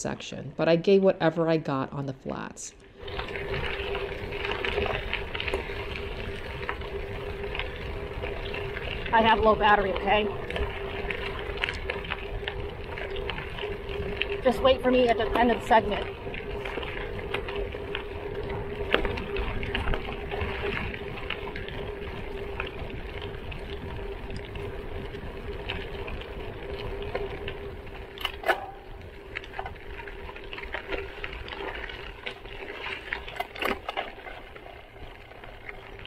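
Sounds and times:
bike tyres crunching on gravel: 2.9 - 36.0.

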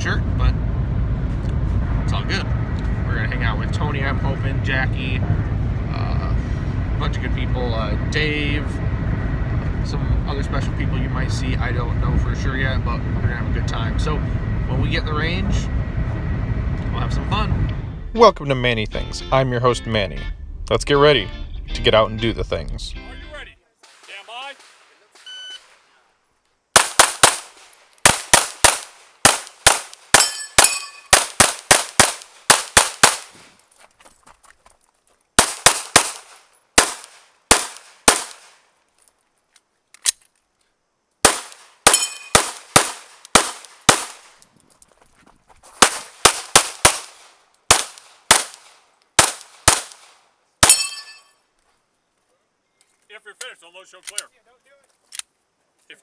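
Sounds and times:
pistol shots: 26.7 - 33.5, 35.4 - 38.6, 41.2 - 44.4, 45.8 - 51.0.

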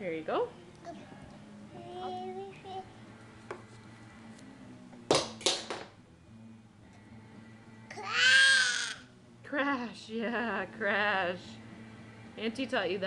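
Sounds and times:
toddler vocal sound: 7.9 - 9.1.

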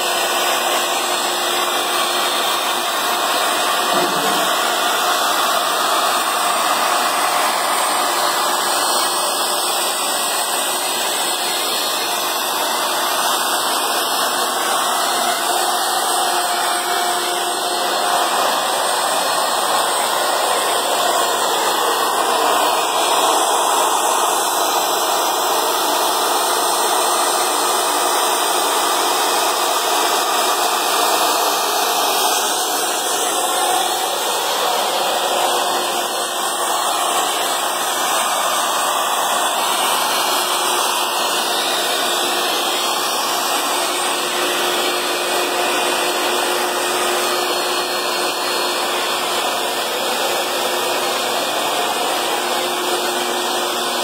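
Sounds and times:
industrial machinery rushing noise: 0.2 - 25.6, 30.1 - 54.0.

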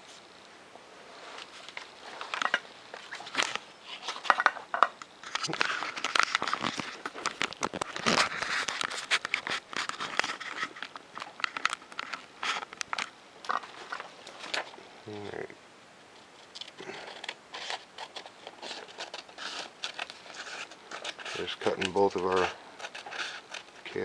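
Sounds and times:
paper and foam crackling: 5.2 - 14.8, 16.2 - 24.0.

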